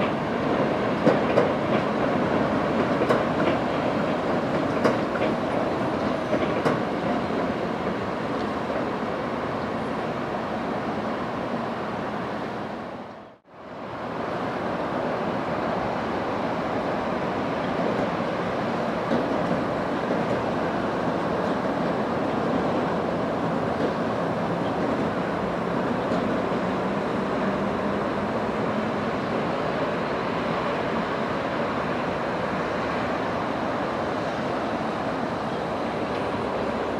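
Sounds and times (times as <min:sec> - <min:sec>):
train running rumble: 0:00.0 - 0:10.0.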